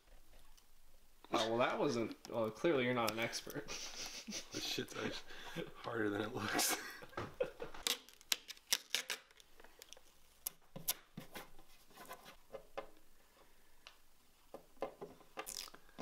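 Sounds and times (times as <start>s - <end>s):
plastic film peeling crackles: 7.8s - 11.0s.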